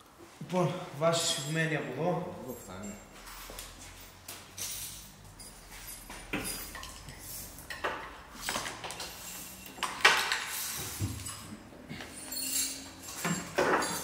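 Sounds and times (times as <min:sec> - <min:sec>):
hand tools clanking on metal: 0:04.1 - 0:14.0.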